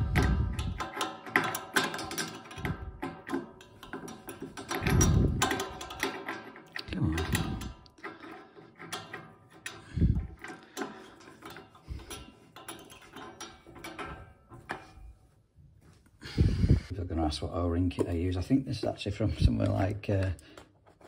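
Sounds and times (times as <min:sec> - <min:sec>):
small metallic clicks of valve: 0:00.0 - 0:15.0.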